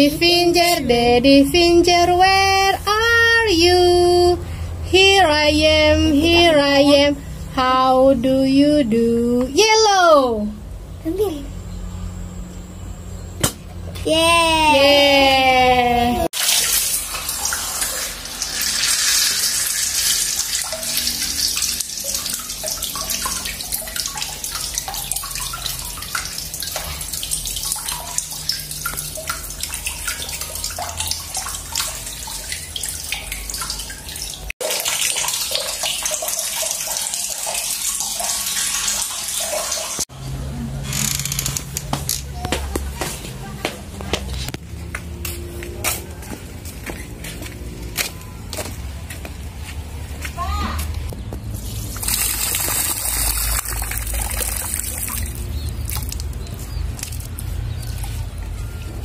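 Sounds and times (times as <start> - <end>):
water rushing into bucket: 16.4 - 40.0, 51.5 - 58.4.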